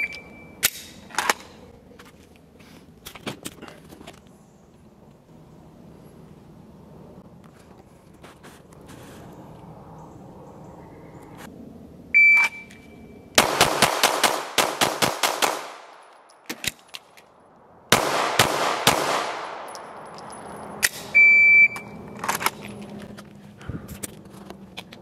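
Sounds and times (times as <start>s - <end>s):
handgun shots: 13.4s - 16.8s, 17.9s - 19.9s
shot timer beep: 21.2s - 22.0s.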